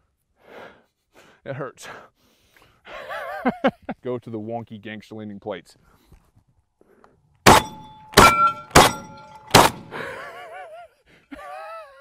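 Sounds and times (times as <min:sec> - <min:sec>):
shotgun shots: 0:07.4 - 0:10.0
steel target plate clanging: 0:07.5 - 0:10.0.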